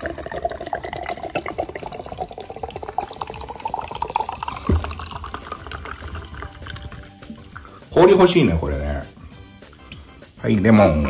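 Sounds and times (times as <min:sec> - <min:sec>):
fizzy drink pouring into glass: 0:00.0 - 0:08.0
dull knock: 0:04.7 - 0:05.2.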